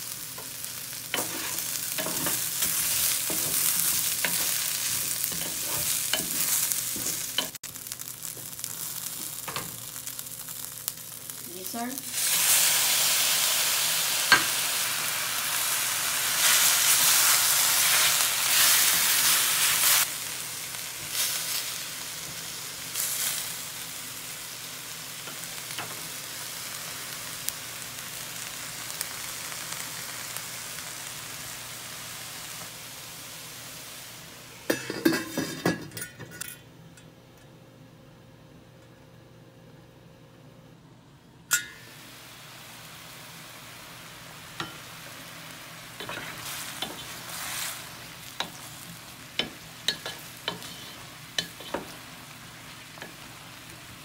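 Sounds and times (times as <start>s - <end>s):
meat sizzling in hot oil: 0.0s - 35.0s, 41.8s - 54.0s
metal pan lid clattering: 34.7s - 36.6s.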